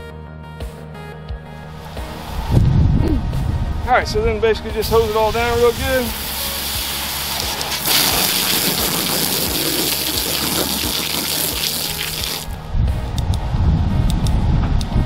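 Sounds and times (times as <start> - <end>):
garden hose spraying water: 5.6 - 12.6.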